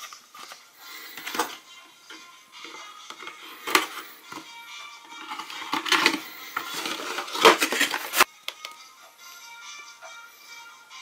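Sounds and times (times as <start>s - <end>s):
quiet background music: 0.0s - 11.0s
wrapped eggs clattering: 5.2s - 8.3s
cardboard box rustling: 5.3s - 8.3s.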